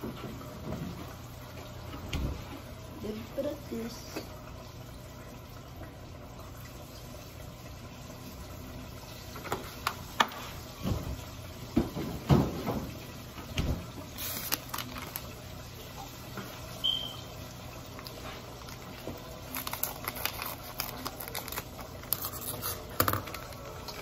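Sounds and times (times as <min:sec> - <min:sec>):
kitchen knocks and thumps: 0:09.5 - 0:13.9.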